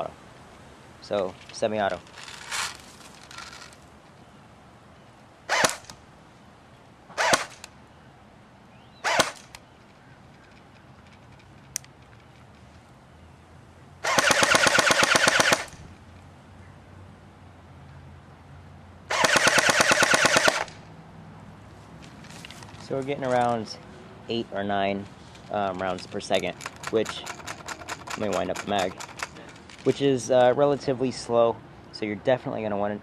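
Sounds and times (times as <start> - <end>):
airsoft rifle shots: 5.5 - 6.0, 7.1 - 7.7, 9.0 - 9.6, 14.0 - 15.8, 19.1 - 20.8.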